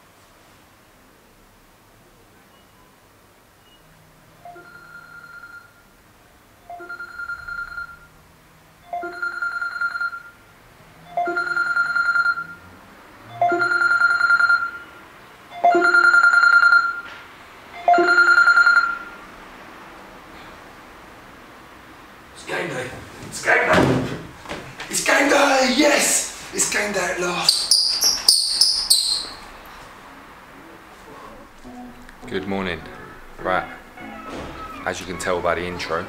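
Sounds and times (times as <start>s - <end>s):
smartphone alarm ringing: 4.4s - 5.8s, 6.7s - 8.1s, 8.8s - 10.4s, 11.1s - 12.6s, 13.3s - 17.1s, 17.7s - 19.2s.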